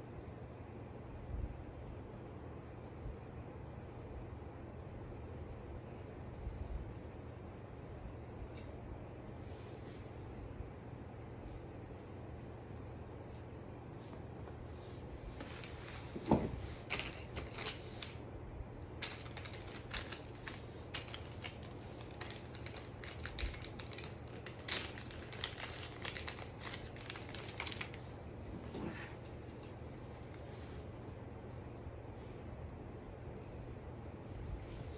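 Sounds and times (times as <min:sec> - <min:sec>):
parts and packaging clicking: 0:19.0 - 0:28.0.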